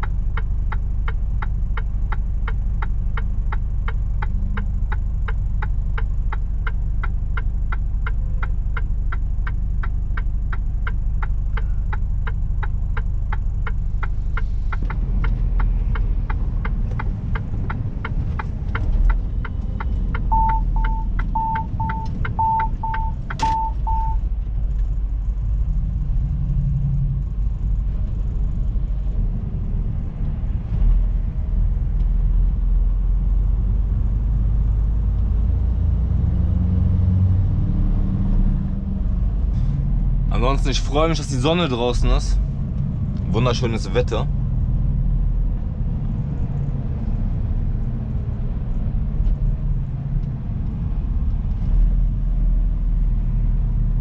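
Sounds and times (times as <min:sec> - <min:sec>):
turn signal ticking: 0:00.0 - 0:30.6
truck engine and road rumble: 0:00.0 - 0:54.0
short high electronic beeps: 0:20.3 - 0:24.2.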